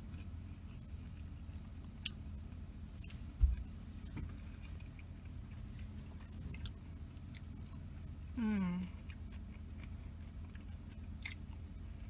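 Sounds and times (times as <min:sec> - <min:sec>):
steady low hum: 0:00.0 - 0:12.0
person chewing: 0:03.0 - 0:12.0
low thump: 0:03.4 - 0:03.6.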